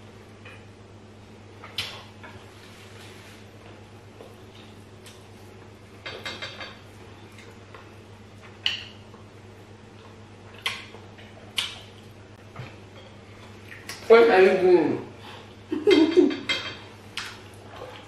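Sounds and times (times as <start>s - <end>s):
steady low hum: 0.0s - 18.0s
eating clicks and smacks: 1.6s - 2.1s, 10.0s - 12.1s, 17.1s - 17.6s.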